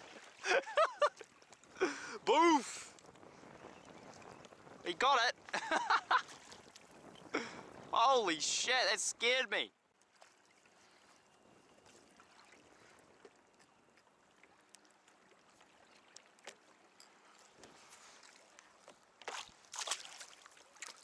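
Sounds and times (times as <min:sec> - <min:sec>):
water lapping and trickling: 0:00.0 - 0:07.9, 0:09.7 - 0:21.0.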